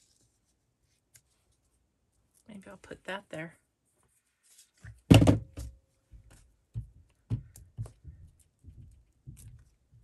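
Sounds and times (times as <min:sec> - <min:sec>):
craft supplies knocking on table: 0:05.1 - 0:05.7.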